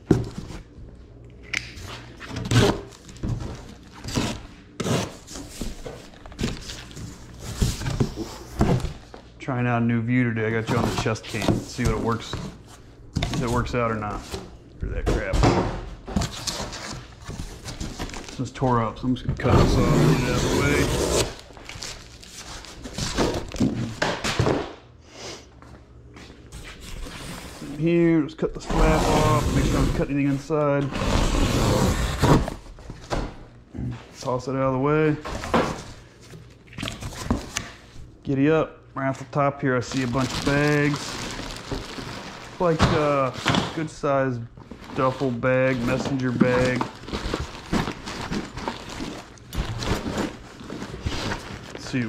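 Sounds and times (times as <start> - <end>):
handling thunks and rustles: 0.0 - 0.7, 1.9 - 9.3, 21.5 - 24.8, 35.2 - 37.9, 40.0 - 44.0, 44.6 - 52.0.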